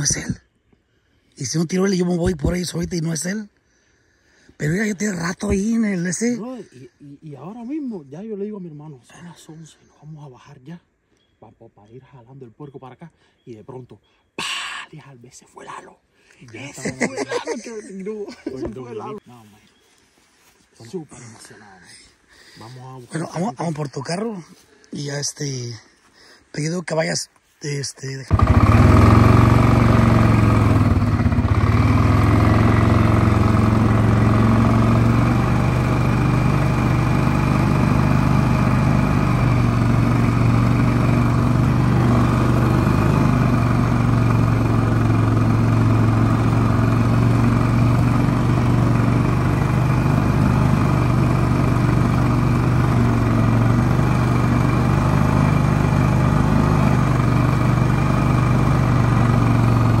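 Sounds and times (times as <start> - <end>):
vehicle engine running steadily: 28.3 - 60.0.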